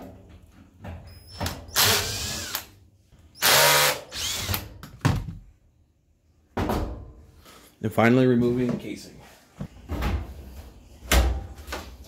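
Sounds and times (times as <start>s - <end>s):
cordless drill motor: 1.8s - 2.7s, 3.4s - 4.7s.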